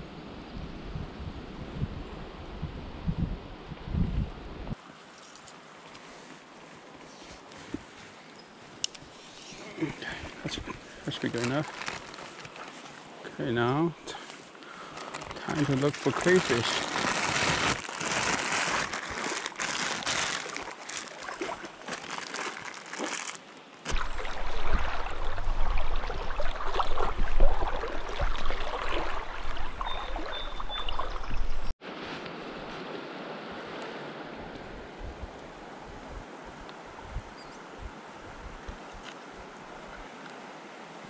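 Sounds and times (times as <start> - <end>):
steady water flow: 4.7 - 41.0
river water sloshing and splashing: 5.0 - 13.3, 14.4 - 34.5.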